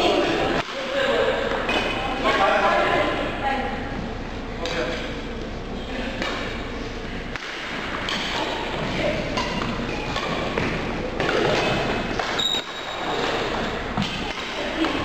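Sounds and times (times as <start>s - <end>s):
rackets striking shuttlecock: 6.2s - 6.7s, 7.3s - 15.0s
shoe squeaks: 12.3s - 13.8s.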